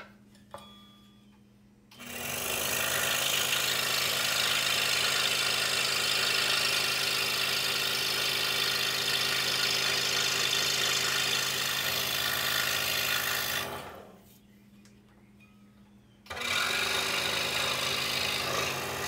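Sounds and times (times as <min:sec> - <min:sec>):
scroll saw cutting wood: 0:02.0 - 0:14.1, 0:16.3 - 0:19.0.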